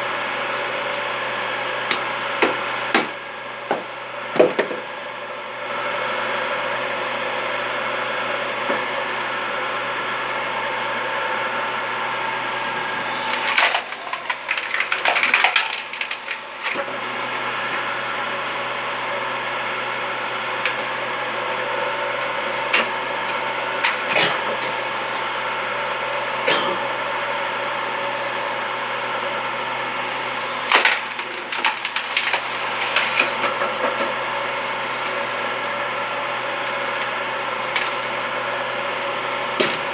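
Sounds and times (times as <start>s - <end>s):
wood cracking and splintering: 12.6s - 17.0s, 23.8s - 24.2s, 30.0s - 33.7s, 36.6s - 38.3s.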